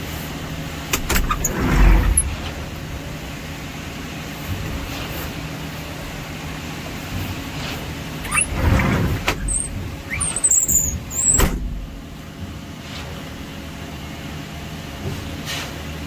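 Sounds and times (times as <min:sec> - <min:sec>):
large engine running: 0:00.0 - 0:16.0
high metallic squeals: 0:08.2 - 0:11.5.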